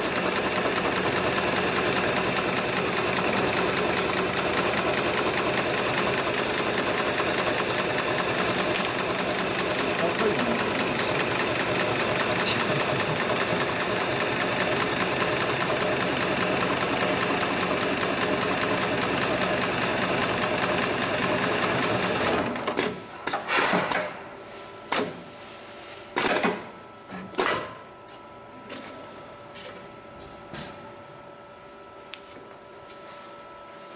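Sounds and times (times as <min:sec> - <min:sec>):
sewing machine stitching: 0:00.0 - 0:23.0.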